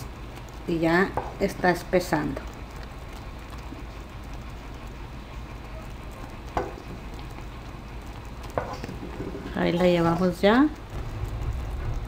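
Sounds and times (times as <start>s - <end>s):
thick liquid bubbling in a pot: 0.0s - 12.0s
wooden spoon stirring: 5.6s - 12.0s.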